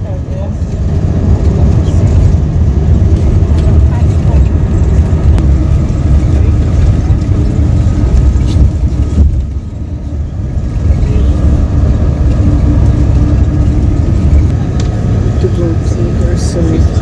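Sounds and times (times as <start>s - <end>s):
bus engine and road rumble: 0.0s - 17.0s.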